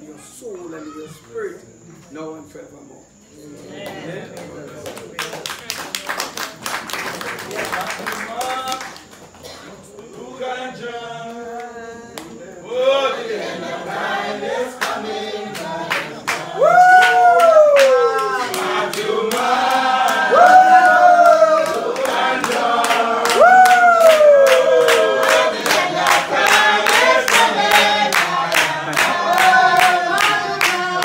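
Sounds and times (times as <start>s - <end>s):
hand claps: 3.9s - 9.4s, 15.9s - 31.0s
congregation singing a hymn: 9.4s - 31.0s.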